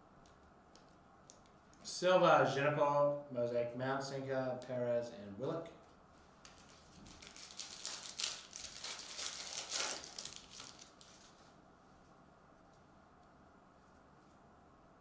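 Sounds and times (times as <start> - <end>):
foil wrapper tearing and crinkling: 6.4 - 11.4.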